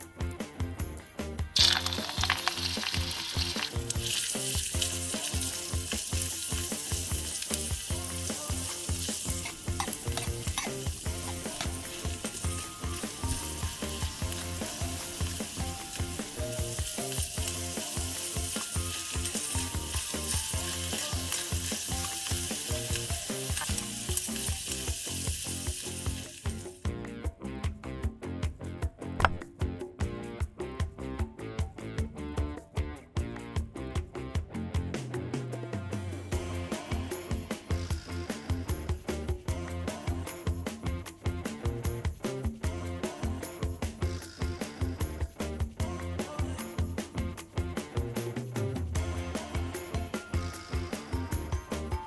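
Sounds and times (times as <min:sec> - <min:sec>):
meat sizzling in oil: 0:01.6 - 0:26.9, 0:49.0 - 0:52.0
stirring scrapes in wok: 0:08.7 - 0:12.1.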